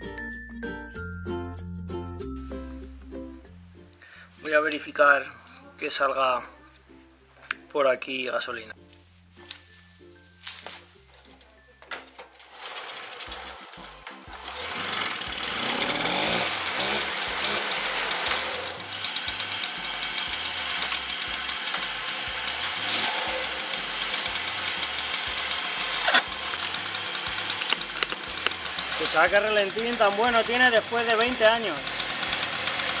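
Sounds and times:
moped engine starting and idling: 0:11.1 - 0:33.0.

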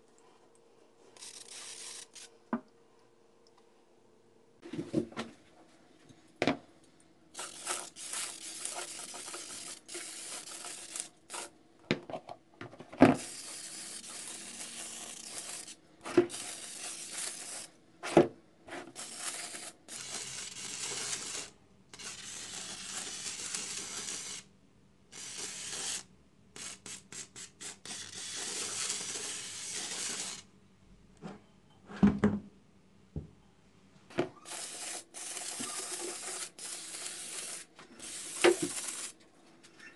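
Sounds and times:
aerosol can spraying: 0:07.3 - 0:11.5, 0:13.2 - 0:17.7, 0:19.0 - 0:24.4, 0:34.4 - 0:39.2.

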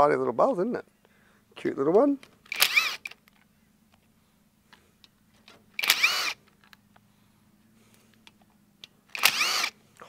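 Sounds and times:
cordless drill motor whine: 0:02.5 - 0:03.1, 0:05.8 - 0:06.4, 0:09.1 - 0:09.8.

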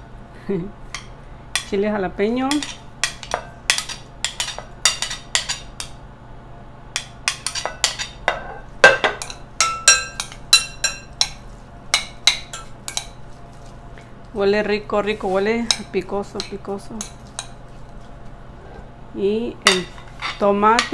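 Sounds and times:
metal spoon clinking on dishes: 0:02.5 - 0:06.0, 0:07.0 - 0:13.2.

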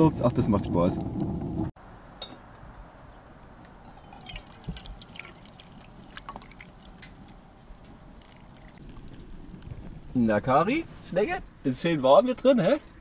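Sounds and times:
tea pouring into mugs: 0:03.9 - 0:09.6.

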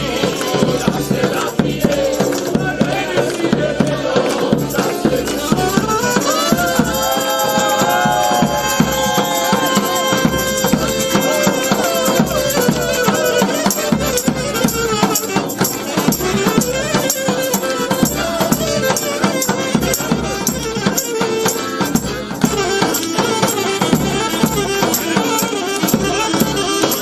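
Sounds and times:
people clapping along: 0:00.0 - 0:14.7, 0:15.3 - 0:27.0
accordion playing: 0:00.0 - 0:27.0.

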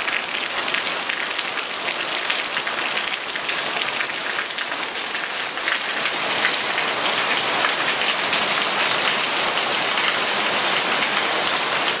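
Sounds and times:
heavy rain on foliage and roofs: 0:00.0 - 0:12.0.

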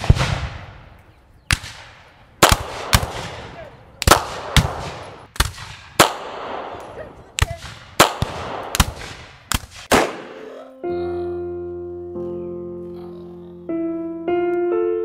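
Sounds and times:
gunshots echoing: 0:00.0 - 0:00.9, 0:01.5 - 0:10.5.

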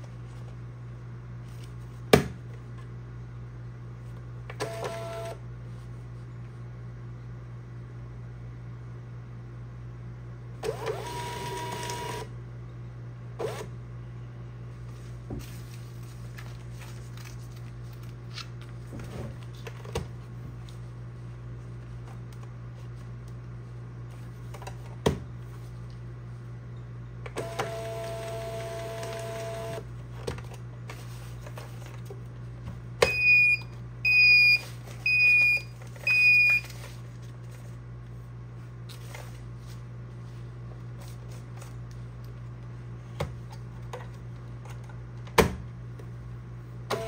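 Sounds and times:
printer motor whine: 0:04.5 - 0:05.4, 0:10.6 - 0:12.3, 0:13.4 - 0:13.7, 0:27.3 - 0:29.9
steady low hum: 0:12.2 - 0:47.0.

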